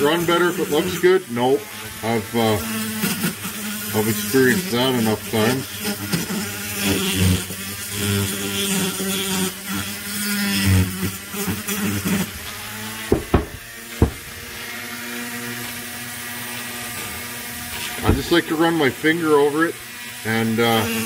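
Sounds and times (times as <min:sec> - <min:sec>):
rotary tool sanding drum whine: 0:00.0 - 0:21.0
sharp knocks: 0:13.1 - 0:14.5, 0:18.1 - 0:18.3.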